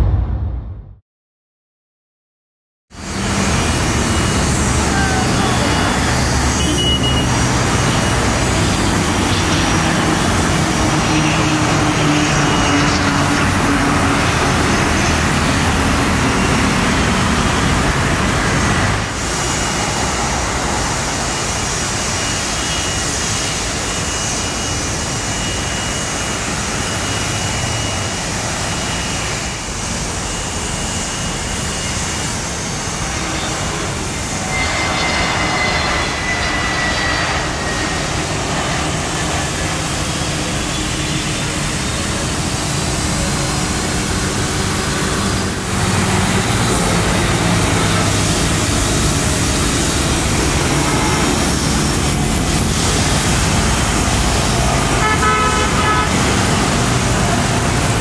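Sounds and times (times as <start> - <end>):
jet engine whine: 0.0 - 1.0, 2.9 - 58.0
jet engines running: 2.9 - 58.0
turboprop propeller hum: 2.9 - 58.0.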